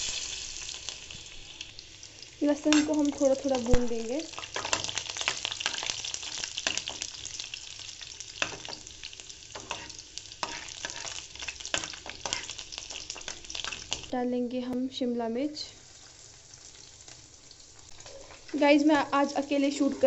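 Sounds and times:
garlic sizzling in hot oil: 0:00.0 - 0:20.0
spoon scraping a pan: 0:02.6 - 0:07.4, 0:08.3 - 0:14.1.

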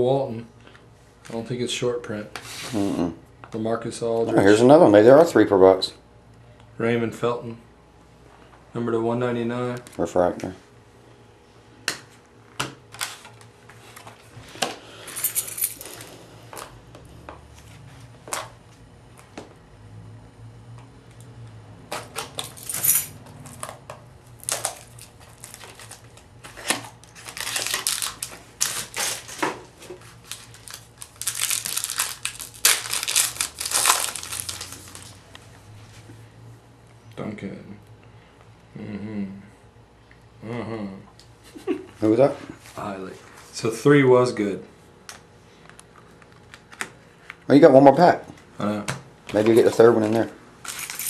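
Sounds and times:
wrapper crinkling and tearing: 0:24.4 - 0:35.2, 0:50.6 - 0:51.0.

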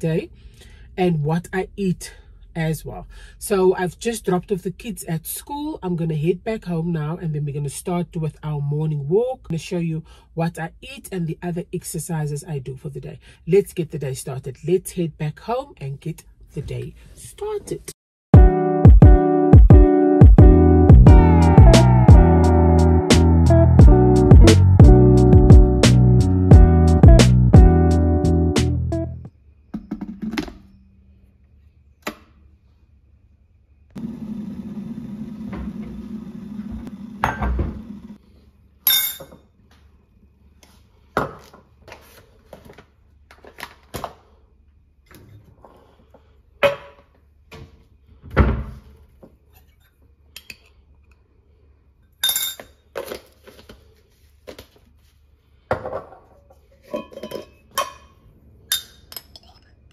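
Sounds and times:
spoon and glass clinking: 0:38.9 - 0:39.4, 0:52.2 - 0:52.8, 0:56.8 - 0:59.8.

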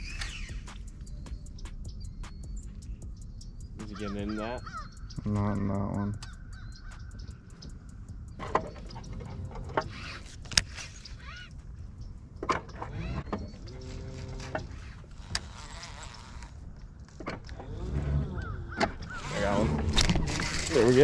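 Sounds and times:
held bird call: 0:00.0 - 0:12.2
short chirping bird calls: 0:00.0 - 0:12.3
sharp clicks: 0:00.0 - 0:17.6.

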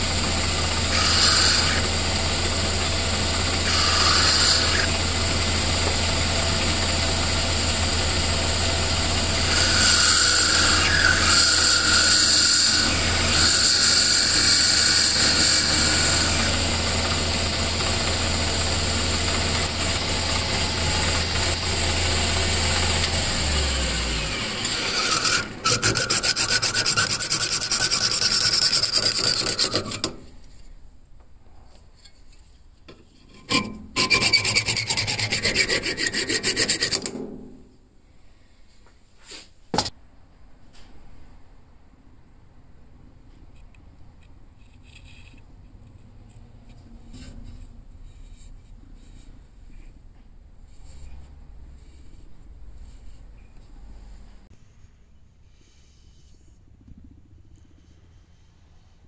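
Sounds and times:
hacksaw cutting: 0:00.0 - 0:30.2, 0:33.4 - 0:37.2
metal lathe running: 0:00.0 - 0:30.2.

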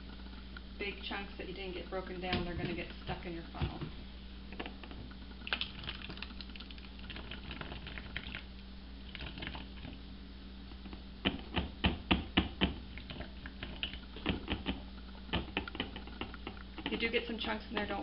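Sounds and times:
gel soap glopping: 0:05.4 - 0:10.1.

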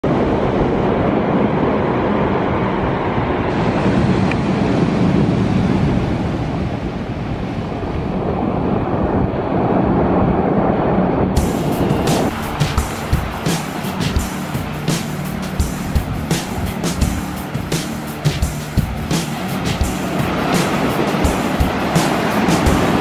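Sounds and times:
wind buffeting microphone: 0:00.0 - 0:23.0
surf breaking on stony beach: 0:00.1 - 0:10.2, 0:11.4 - 0:23.0.

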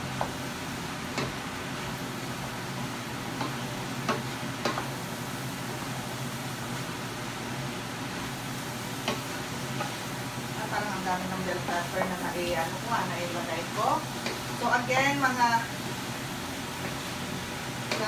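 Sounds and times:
meat and vegetables sizzling: 0:00.0 - 0:18.0
spatula knocking pan: 0:09.0 - 0:09.9.

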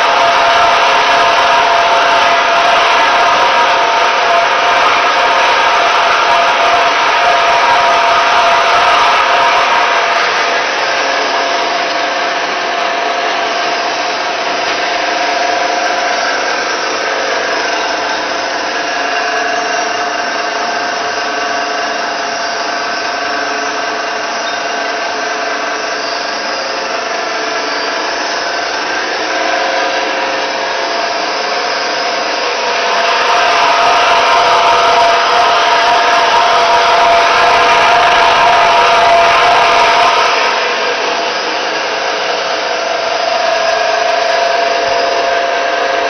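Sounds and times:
mixer motor humming and whining: 0:00.0 - 0:46.0.

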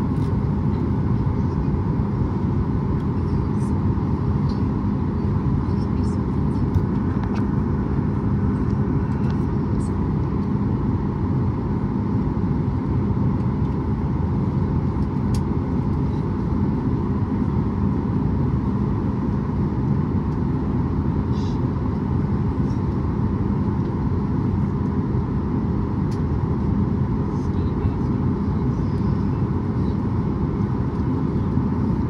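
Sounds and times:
jet engine hum and rumble: 0:00.0 - 0:32.0.

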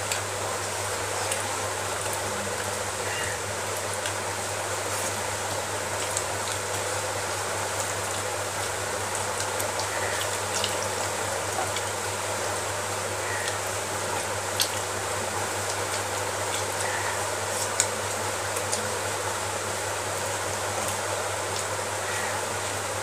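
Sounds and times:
chewing clicks: 0:09.4 - 0:10.9, 0:11.6 - 0:11.9, 0:14.5 - 0:14.9.

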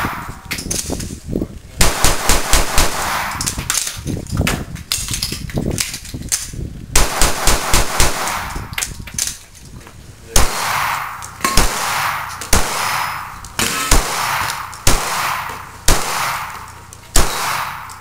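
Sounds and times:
pistol shots: 0:01.8 - 0:04.0, 0:07.0 - 0:08.7, 0:10.3 - 0:18.0.

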